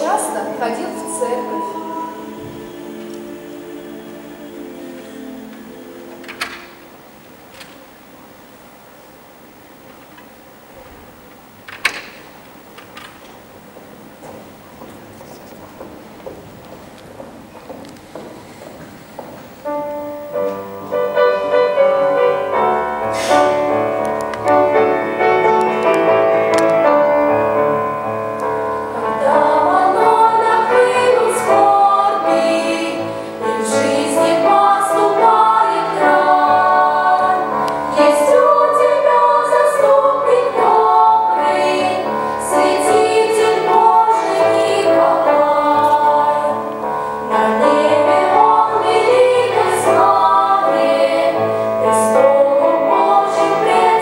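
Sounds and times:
piano accompaniment: 0.0s - 7.5s, 13.4s - 54.0s
girls' choir singing: 0.0s - 7.7s, 19.7s - 54.0s.

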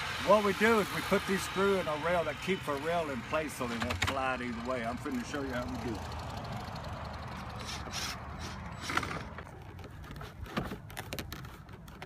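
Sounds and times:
short squeak: 7.5s - 9.4s.

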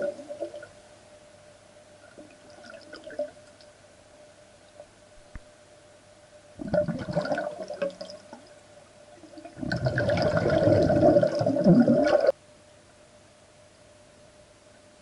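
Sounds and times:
underwater breath bubbling: 9.4s - 12.3s.

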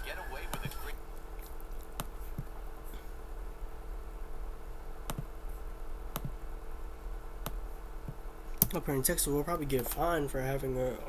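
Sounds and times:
low electrical hum: 0.0s - 11.0s
computer mouse clicks: 6.1s - 6.4s.

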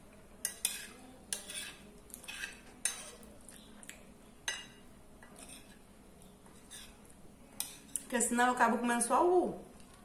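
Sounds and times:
metal spoon scraping ceramic plate: 0.4s - 3.2s, 5.3s - 5.8s, 6.6s - 7.0s.

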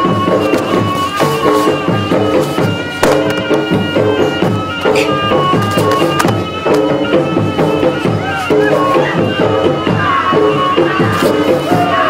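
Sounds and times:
reedy wind instrument melody: 0.0s - 12.0s.

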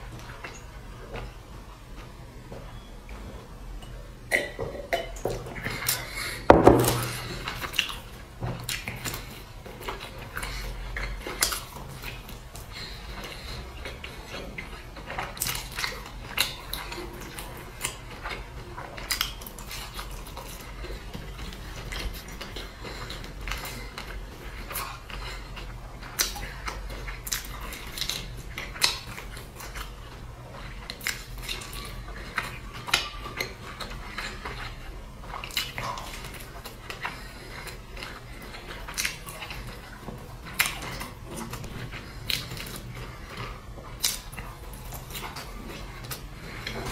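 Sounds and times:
biting and chewing: 5.3s - 46.9s.

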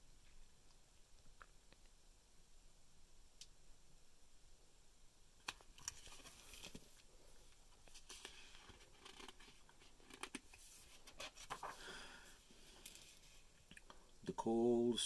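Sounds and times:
book pages rustling: 5.4s - 13.5s.

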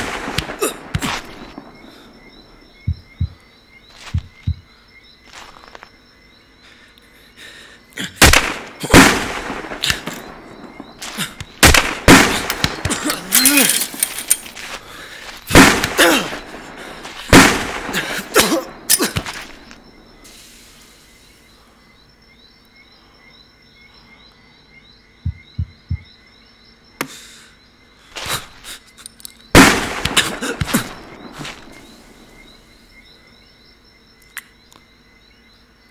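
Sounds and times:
gunshots with ringing tail: 0.0s - 1.9s, 8.2s - 14.0s, 15.5s - 19.1s, 29.6s - 32.6s
low thumps: 2.8s - 3.4s, 4.1s - 4.7s, 25.2s - 26.1s.

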